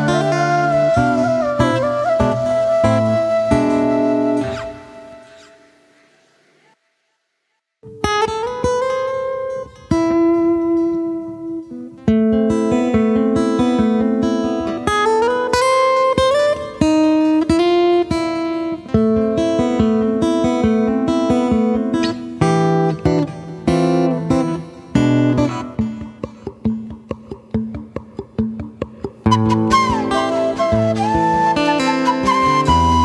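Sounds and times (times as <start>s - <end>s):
plucked acoustic guitar melody: 0.0s - 5.7s, 7.8s - 33.0s.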